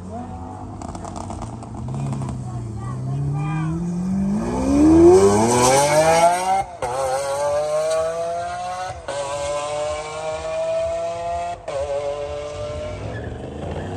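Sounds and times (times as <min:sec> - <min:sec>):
sports car engine accelerating: 0:00.1 - 0:13.9.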